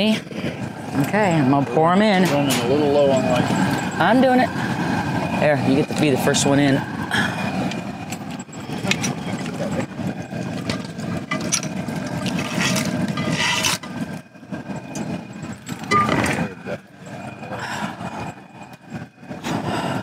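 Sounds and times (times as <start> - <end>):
propane burner running: 0.0 - 20.0
crawfish clattering and splashing: 8.9 - 13.9.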